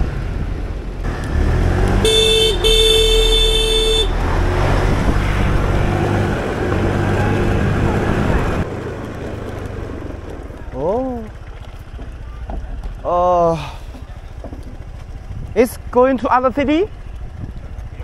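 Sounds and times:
engine and road traffic rumble: 0.0s - 18.0s
vehicle horn honking: 2.0s - 4.2s.

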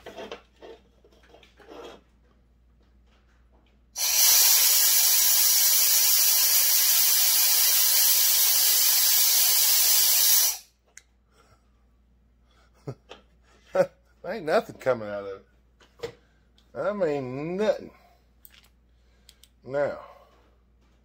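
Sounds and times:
compressed air blow gun hissing: 4.0s - 10.6s.

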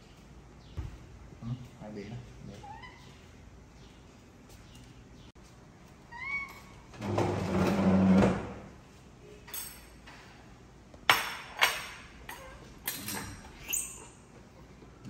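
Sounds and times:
wooden chair scraping floor: 6.9s - 8.8s.

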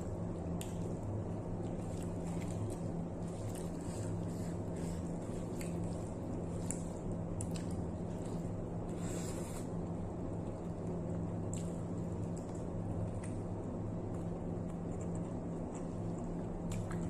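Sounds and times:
steady low hum: 0.0s - 17.0s
wet chewing: 1.6s - 9.7s.

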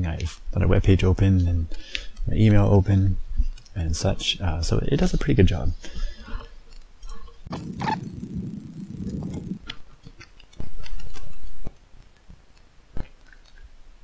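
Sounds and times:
low hum: 7.2s - 11.7s.

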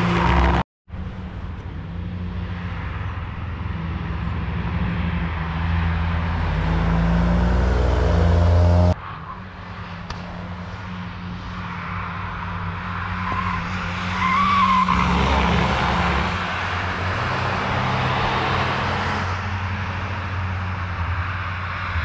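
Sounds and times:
quieter engine: 0.0s - 14.1s
car engine at speed: 0.0s - 22.0s.

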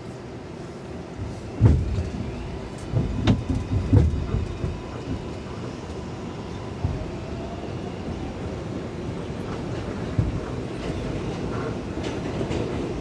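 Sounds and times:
subway car rumbling: 0.0s - 13.0s
deep clunks and rattles: 1.2s - 5.3s.

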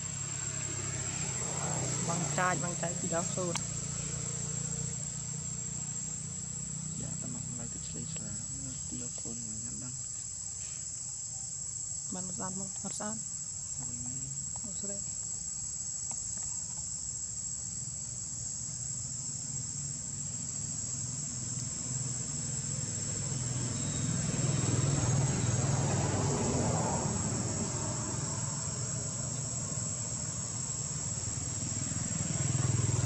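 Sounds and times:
passing vehicle engine rumble: 0.0s - 10.2s, 18.8s - 33.0s
high-pitched insect chorus: 0.0s - 33.0s.

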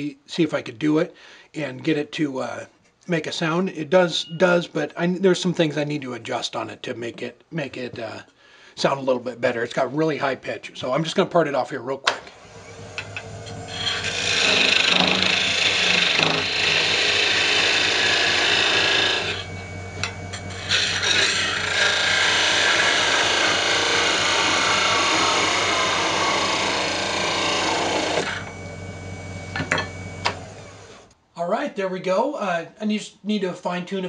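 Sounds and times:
tool scraping spinning wood: 12.2s - 31.1s
lathe humming: 12.2s - 31.2s.

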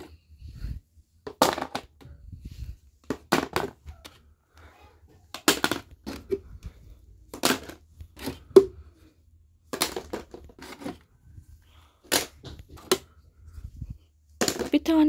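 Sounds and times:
plastic puzzle cubes clacking: 5.3s - 6.4s, 7.3s - 8.6s, 9.7s - 11.0s.

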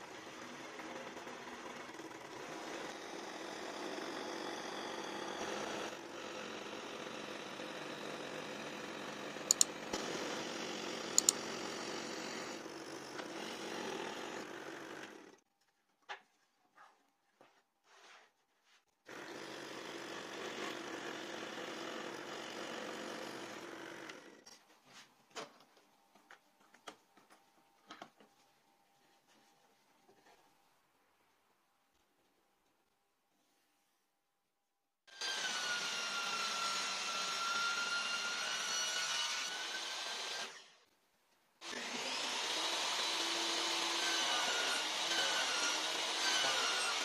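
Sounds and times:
scroll saw cutting wood: 0.2s - 15.4s, 19.1s - 24.5s, 35.1s - 40.8s, 41.6s - 47.0s.

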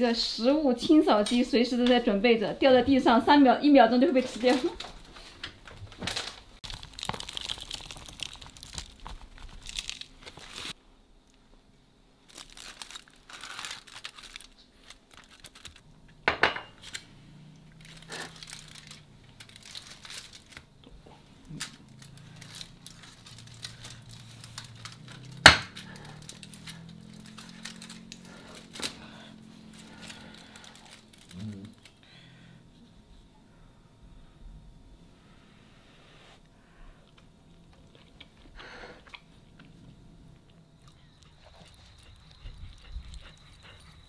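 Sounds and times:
aluminium foil crinkling: 5.9s - 10.8s, 12.2s - 15.8s, 16.8s - 17.1s, 17.7s - 32.0s.

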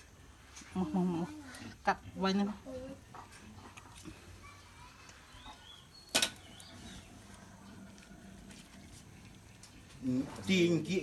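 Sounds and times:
faint high chirps: 4.3s - 7.5s.

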